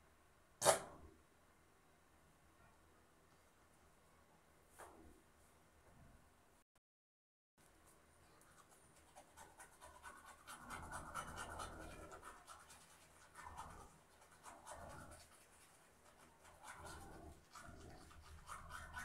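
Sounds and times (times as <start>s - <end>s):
toothbrush scrubbing teeth: 8.4s - 19.0s.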